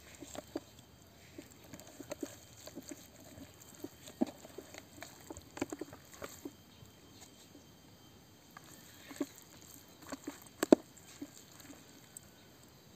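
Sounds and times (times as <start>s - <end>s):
hands squelching raw chicken: 0.0s - 7.4s, 8.5s - 12.3s.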